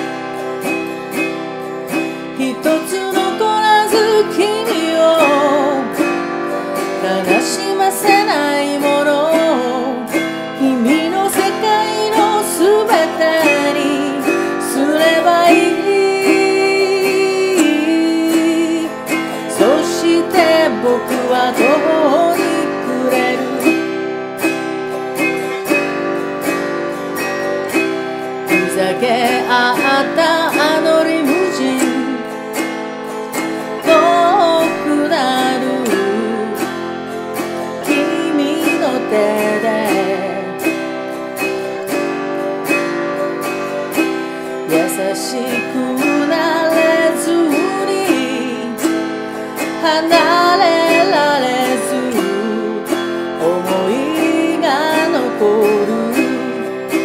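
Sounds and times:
autoharp chords strummed: 0:00.0 - 0:57.0
woman singing slow song: 0:02.3 - 0:24.2, 0:28.4 - 0:32.4, 0:33.8 - 0:37.0, 0:37.7 - 0:41.0, 0:44.5 - 0:57.0.

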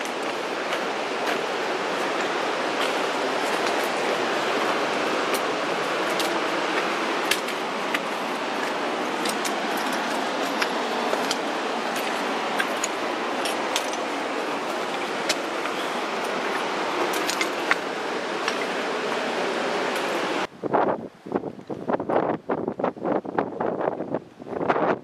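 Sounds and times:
footsteps on loose shale: 0:00.0 - 0:20.1
steady rushing noise: 0:00.0 - 0:25.0.

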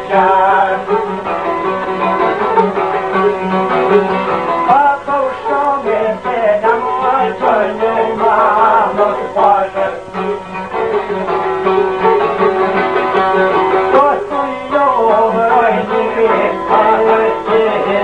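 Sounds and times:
plucked lute folk music: 0:00.0 - 0:18.0.

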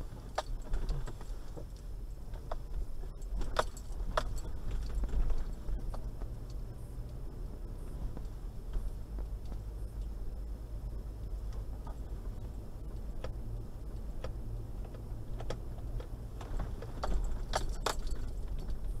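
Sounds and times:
car engine and road rumble: 0:00.0 - 0:19.0
clicks and rattles: 0:00.3 - 0:06.6, 0:14.2 - 0:19.0.

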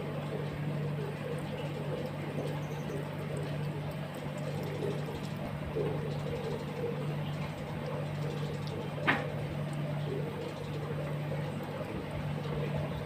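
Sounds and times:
animal feeding sounds: 0:00.0 - 0:13.0
steady low hum: 0:00.0 - 0:13.0.

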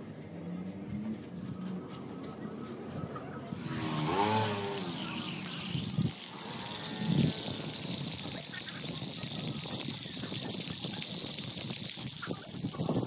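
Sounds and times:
water running from tap: 0:04.8 - 0:13.0.

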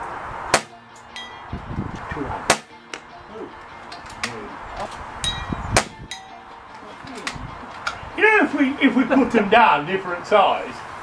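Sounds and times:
air rifle shots: 0:00.5 - 0:00.8, 0:02.4 - 0:03.0, 0:05.7 - 0:06.0
pellets pinging on steel targets: 0:05.2 - 0:06.5.

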